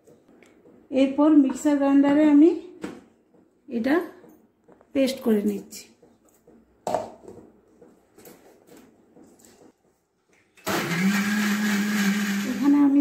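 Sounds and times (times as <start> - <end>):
mixer grinder humming: 10.6 - 13.0.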